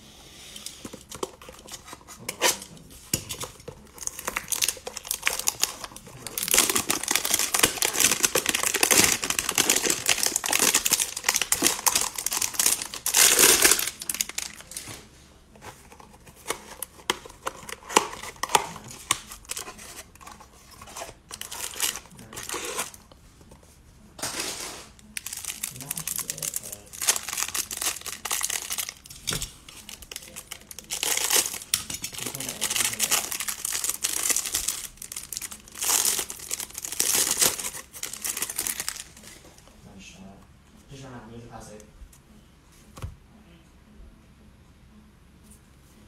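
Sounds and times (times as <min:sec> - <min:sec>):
cellophane crinkling: 0:00.8 - 0:15.0, 0:15.7 - 0:23.1, 0:25.0 - 0:39.5.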